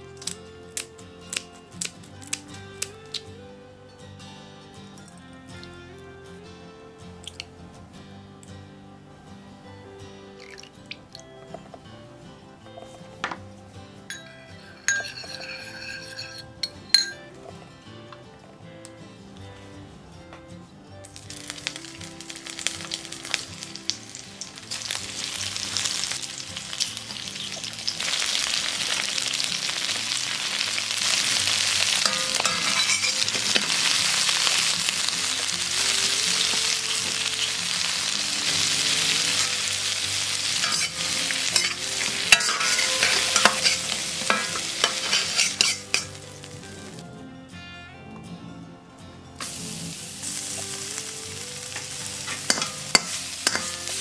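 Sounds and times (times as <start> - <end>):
utensils clicking against pan: 14.2 - 17.2, 30.4 - 35.0, 39.3 - 46.2, 51.8 - 54.0
shrimp sizzling in hot oil: 14.7 - 16.4, 21.2 - 46.6, 49.4 - 54.0.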